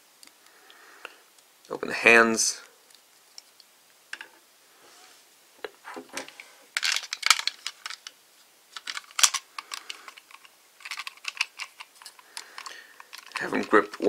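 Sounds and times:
plastic toy parts clicking: 6.8s - 8.2s, 8.8s - 14.0s.

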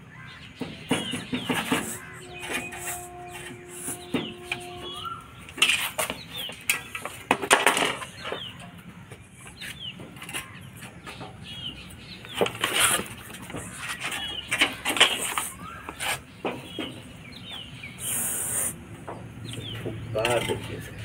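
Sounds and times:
birds chirping: 0.0s - 21.0s
stick scraping on concrete: 1.4s - 8.4s, 12.2s - 17.0s.

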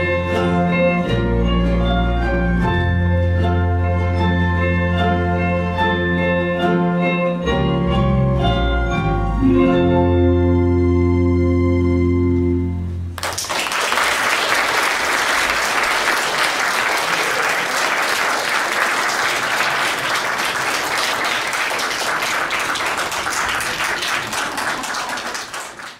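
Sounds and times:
audience applause: 13.2s - 25.9s.

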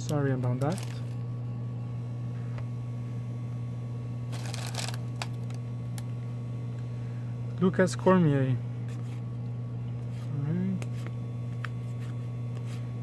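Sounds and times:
steady low hum: 0.0s - 13.0s
cards rustling: 4.4s - 5.6s.

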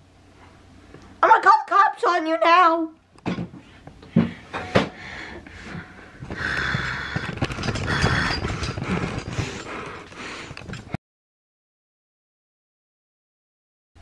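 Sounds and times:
rustling against microphone: 5.5s - 11.0s.

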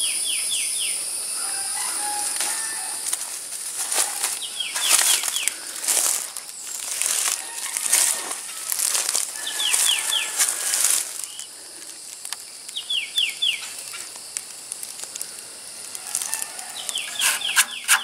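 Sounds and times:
footsteps crunching dry leaves: 1.5s - 12.3s, 15.0s - 18.0s.

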